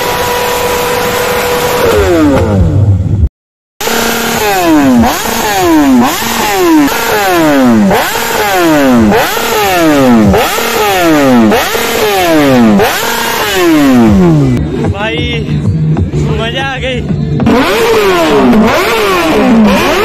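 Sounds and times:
motorcycle engine revving: 0:00.0 - 0:20.0.

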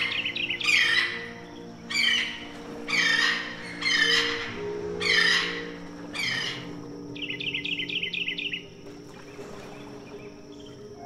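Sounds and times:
soft background music: 0:00.0 - 0:11.0
harsh bird squawks: 0:01.9 - 0:06.6.

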